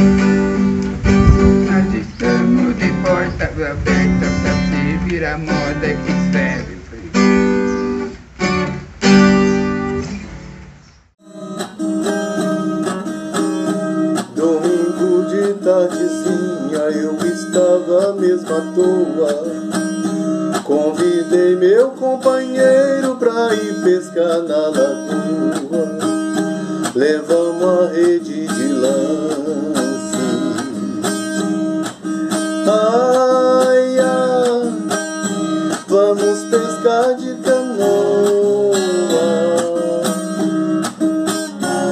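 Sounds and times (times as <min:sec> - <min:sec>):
acoustic guitar: 0:00.0 - 0:41.9
guitar-like strings playing chords: 0:00.0 - 0:41.9
man singing: 0:01.0 - 0:07.4, 0:14.2 - 0:19.9, 0:20.5 - 0:31.6, 0:32.5 - 0:40.6, 0:41.3 - 0:41.9.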